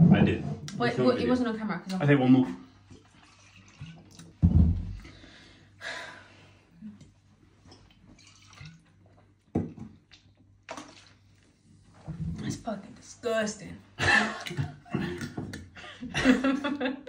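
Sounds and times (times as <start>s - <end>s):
liquid and mouth sounds: 2.8s - 5.2s, 6.8s - 11.5s.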